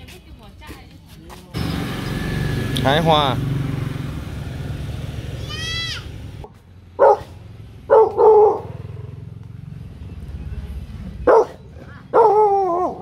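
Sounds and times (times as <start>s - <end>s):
puppy barking: 7.0s - 8.9s, 11.2s - 13.0s.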